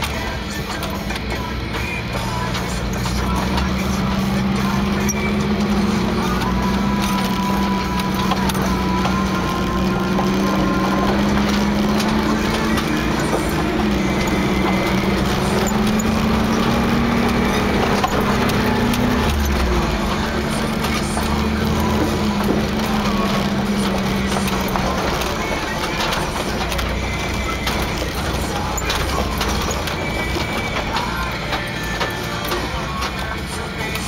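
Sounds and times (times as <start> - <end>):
car engine droning: 0.0 - 34.0
knocks and rattles: 0.0 - 34.0
tyres crunching over gravel: 0.0 - 34.0.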